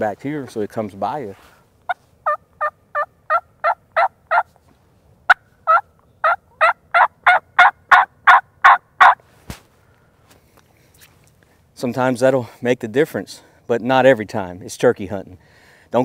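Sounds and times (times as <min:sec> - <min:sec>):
turkey call yelps: 0:02.2 - 0:04.5, 0:05.3 - 0:09.2.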